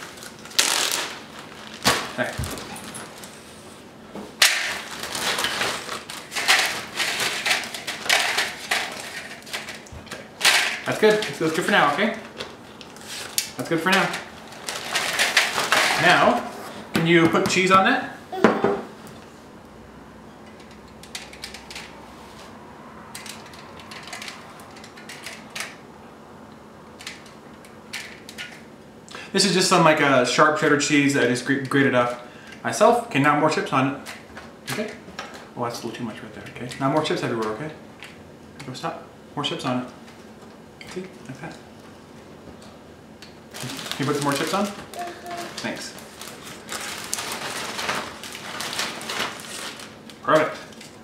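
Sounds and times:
plastic bag crinkling: 0.0s - 3.4s, 4.6s - 12.4s, 14.0s - 16.5s, 43.5s - 51.0s
tortilla chips rustling: 0.0s - 3.5s, 4.6s - 9.9s, 43.5s - 51.0s.

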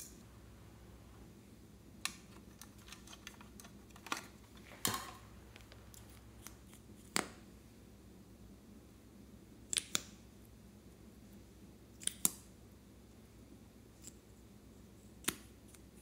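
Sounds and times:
plastic objects clicking: 2.1s - 5.2s.

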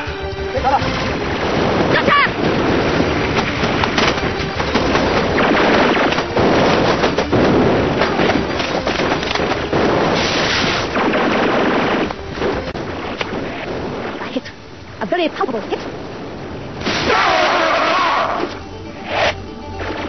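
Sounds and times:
explosions: 0.9s - 14.5s, 15.9s - 17.6s
gunfire: 1.4s - 13.8s.

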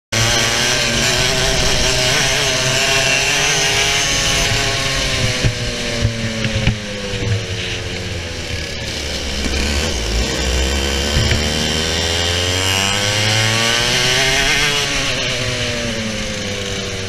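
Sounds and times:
kart engine at high revs: 0.1s - 17.0s
sharp knocks: 11.0s - 11.9s.

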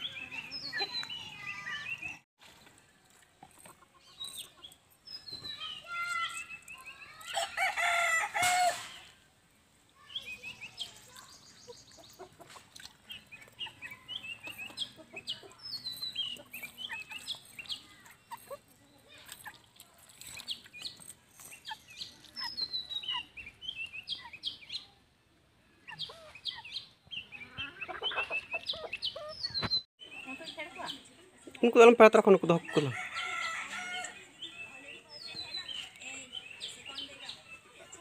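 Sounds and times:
chickens clucking: 3.1s - 4.9s, 10.7s - 24.8s, 25.8s - 38.0s
high chirping calls: 25.7s - 31.1s.

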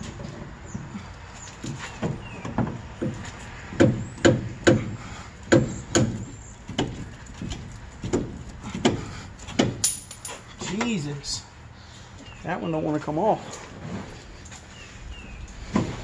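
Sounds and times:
sharp metal knocks: 2.0s - 10.9s.

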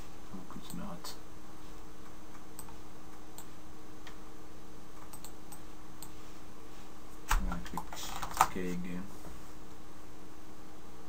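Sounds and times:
electrical hum: 0.0s - 11.0s
microphone hiss: 0.0s - 11.0s
computer mouse clicks: 2.3s - 4.2s, 5.0s - 6.2s.

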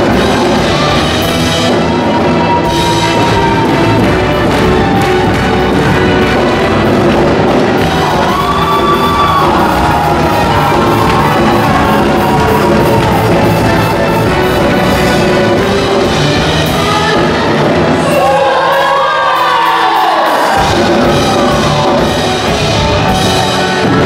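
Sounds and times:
upbeat folk dance music: 0.0s - 18.4s, 20.5s - 24.0s
people whooping and shouting: 1.8s - 6.1s, 7.7s - 14.2s, 16.8s - 24.0s.

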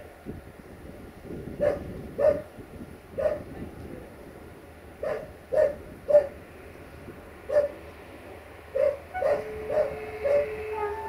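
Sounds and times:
dog barking: 1.6s - 2.4s, 3.2s - 3.4s, 5.0s - 6.4s, 7.5s - 7.8s, 8.7s - 10.6s
train horn tone: 9.0s - 11.0s.

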